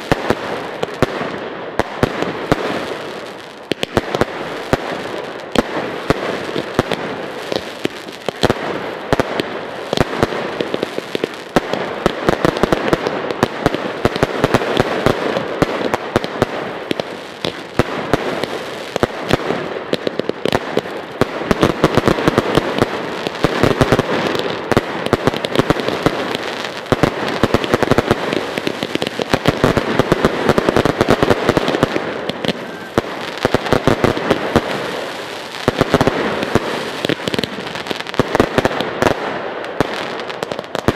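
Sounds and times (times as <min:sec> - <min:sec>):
fireworks bangs and crackles: 0:00.0 - 0:40.9.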